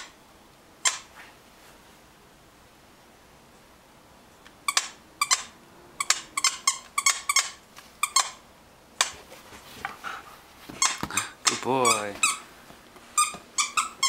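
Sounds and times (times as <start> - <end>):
dog toy squeaking: 0.8 - 1.1, 4.7 - 8.4, 10.8 - 12.4, 13.2 - 14.0.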